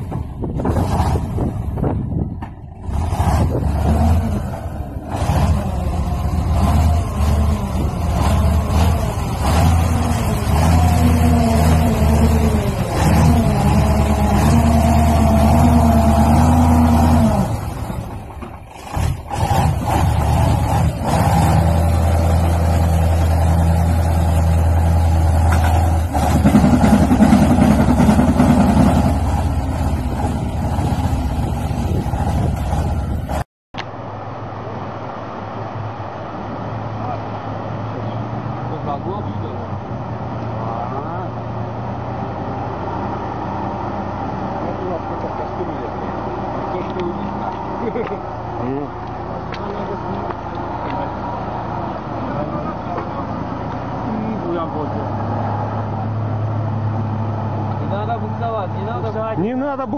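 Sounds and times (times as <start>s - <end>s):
truck engine labouring: 0.0s - 59.9s
wheels churning through mud: 2.8s - 33.4s.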